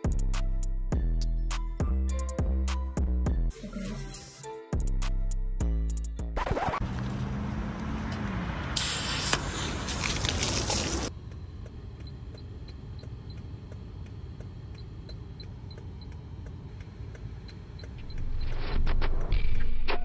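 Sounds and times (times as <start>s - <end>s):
low engine rumble: 6.8s - 19.3s
spray can hissing: 8.8s - 11.1s
regular light ticking: 11.1s - 18.6s.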